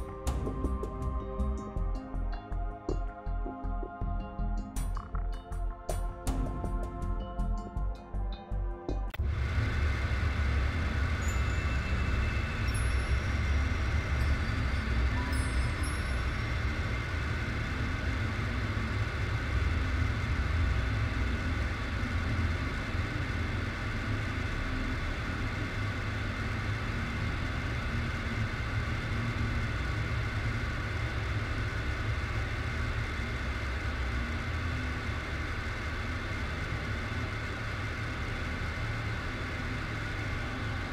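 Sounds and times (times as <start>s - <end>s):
low droning rumble: 9.1s - 40.9s.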